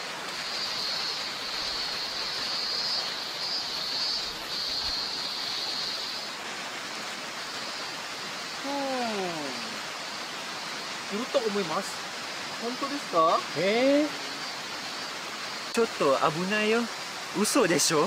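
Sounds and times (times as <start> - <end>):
rushing forest stream: 0.0 - 18.0.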